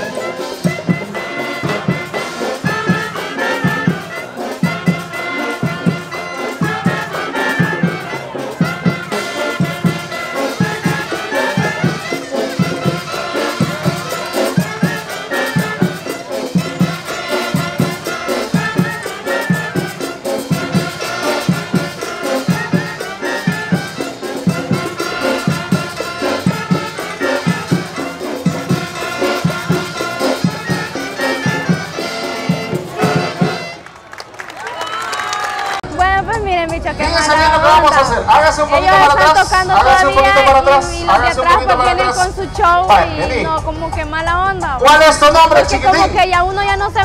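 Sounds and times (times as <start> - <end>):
live brass band music: 0.0 - 34.7, 35.9 - 47.0.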